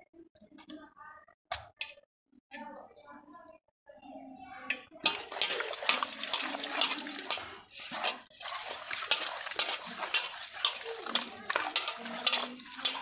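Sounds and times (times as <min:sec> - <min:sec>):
wet scraping of fish in metal basin: 0:05.0 - 0:13.0.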